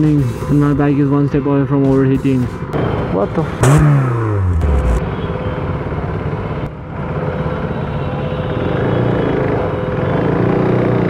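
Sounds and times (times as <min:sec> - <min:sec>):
traffic noise: 0:00.0 - 0:11.0
motorcycle engine: 0:02.8 - 0:05.2.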